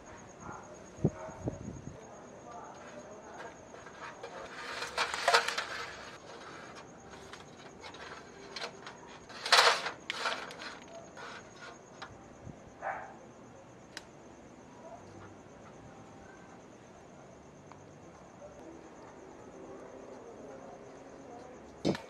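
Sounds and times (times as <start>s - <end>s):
wiring rustling: 2.7s - 12.2s.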